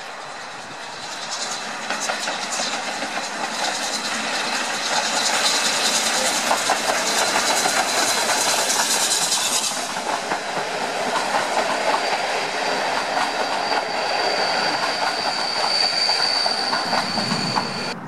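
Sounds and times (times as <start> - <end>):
steam hissing: 0.0 - 18.0
wheels clattering over rail joints: 0.6 - 14.0.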